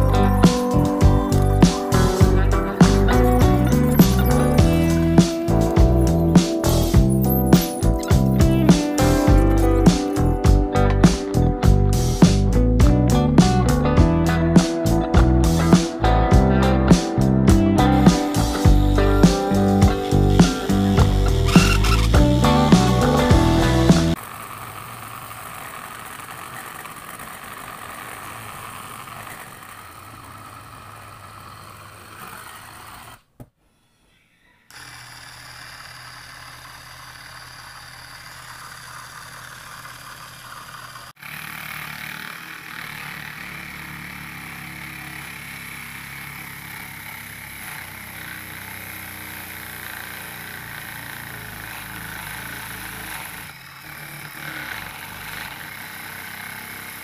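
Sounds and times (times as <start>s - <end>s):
electric motor humming: 0.0s - 33.3s, 34.7s - 57.0s
grater rasping coconut: 34.8s - 57.0s.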